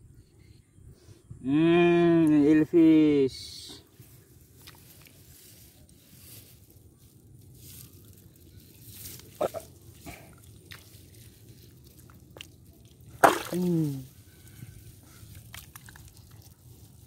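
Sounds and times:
hand squelching in mud: 0:09.0 - 0:17.0.

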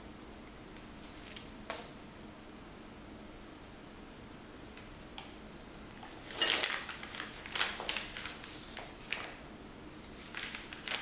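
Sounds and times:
handling clicks and rustles: 0:06.0 - 0:09.3.

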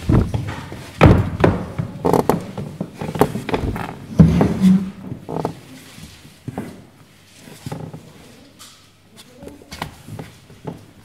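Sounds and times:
person dropping into an armchair: 0:00.0 - 0:02.4
heeled footsteps on wooden boards: 0:00.0 - 0:05.6.

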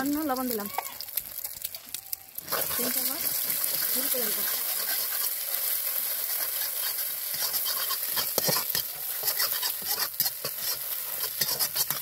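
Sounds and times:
oil sizzling: 0:00.0 - 0:12.0
metal spatula scraping a pan: 0:02.5 - 0:12.0.

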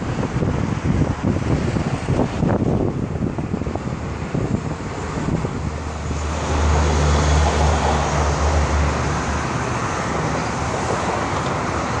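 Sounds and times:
passing vehicle engine rumble: 0:00.0 - 0:12.0
tyres hissing on highway: 0:00.0 - 0:12.0.

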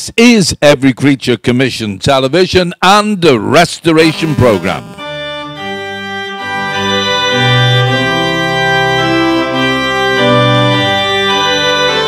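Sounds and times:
organ playing held chords: 0:03.9 - 0:12.0.

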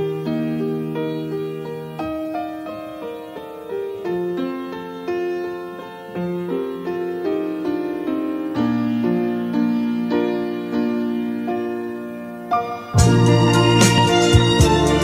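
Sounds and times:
gentle piano chords: 0:00.0 - 0:15.0
low bass note: 0:13.0 - 0:15.0.

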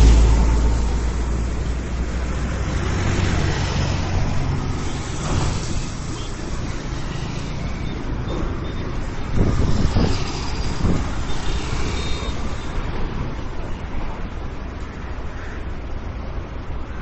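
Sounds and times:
heavy vehicle low rumble: 0:00.0 - 0:06.7
passing vehicles: 0:00.0 - 0:17.0.

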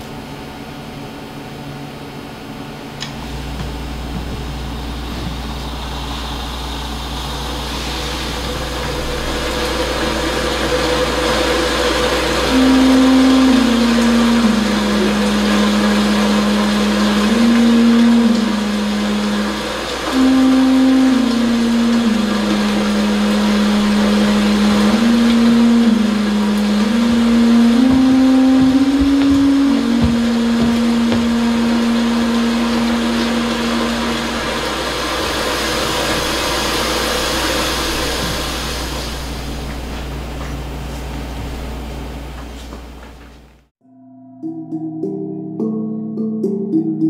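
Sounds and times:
low sustained tone descending: 0:03.2 - 0:39.7
steady rushing noise: 0:03.2 - 0:39.9.

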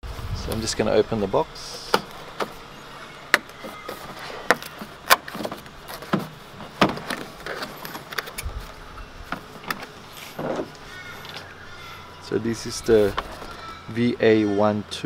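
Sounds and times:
cardboard rustling: 0:03.4 - 0:11.5.

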